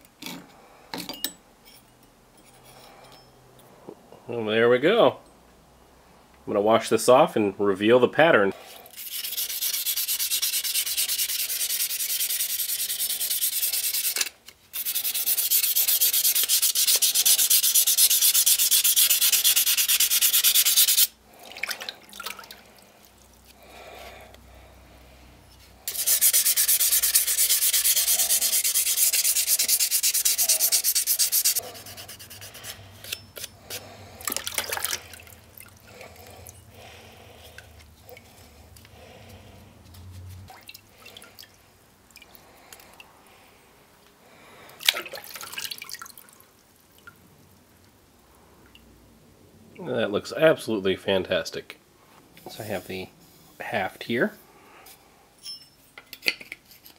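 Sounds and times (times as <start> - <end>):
fast rubbing hiss: 8.9 - 21.2, 25.9 - 32.8.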